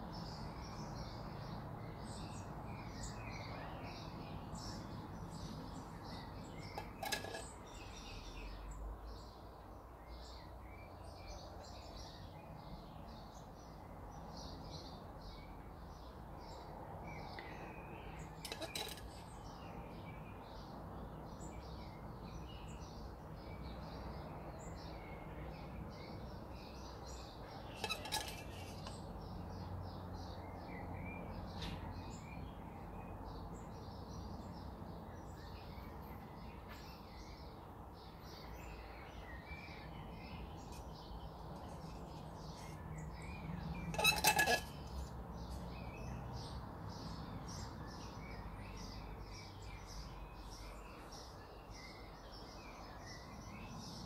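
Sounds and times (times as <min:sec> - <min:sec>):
birds chirping: 0:00.0 - 0:13.8, 0:35.2 - 0:54.0.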